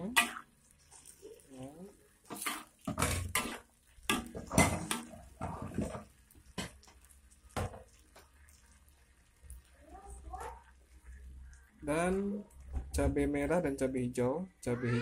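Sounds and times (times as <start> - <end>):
metal spatula scraping a wok: 2.2 - 6.1.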